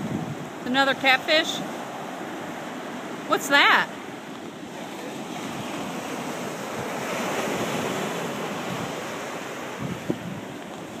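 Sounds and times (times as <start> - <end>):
wind on microphone: 0.0 - 0.7, 4.7 - 11.0
ocean surf breaking: 0.0 - 11.0.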